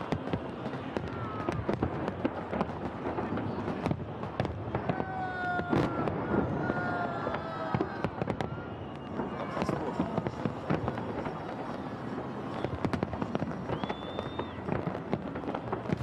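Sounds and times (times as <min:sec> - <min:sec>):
fireworks crackling and banging: 0:00.0 - 0:16.0
person cheering: 0:04.9 - 0:08.2.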